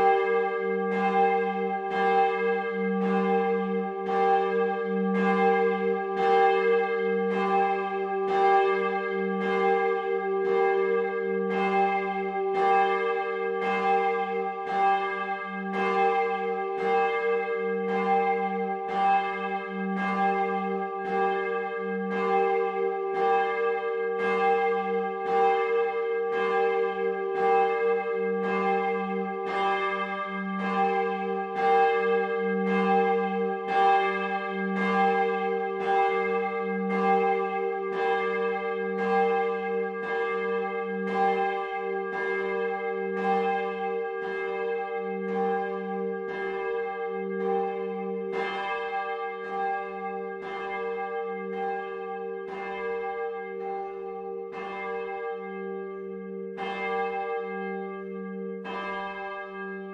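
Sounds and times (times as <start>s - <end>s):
large church bells ringing: 0.0s - 59.9s.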